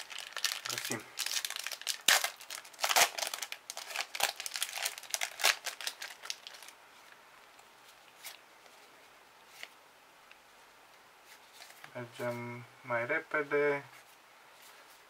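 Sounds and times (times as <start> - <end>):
foil wrapper crinkling and tearing: 0.0 - 6.8
handling of cards: 0.0 - 10.4, 11.2 - 12.0.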